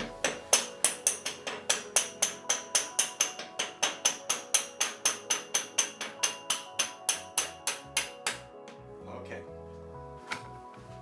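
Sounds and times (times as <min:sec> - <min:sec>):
mallet tapping metal: 0:00.0 - 0:08.5.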